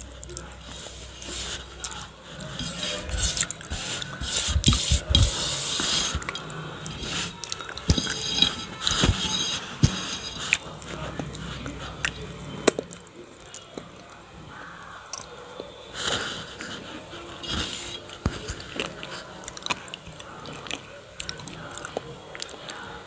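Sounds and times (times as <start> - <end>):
fingers scraping paste on steel plate: 0.0 - 12.8, 16.1 - 19.5.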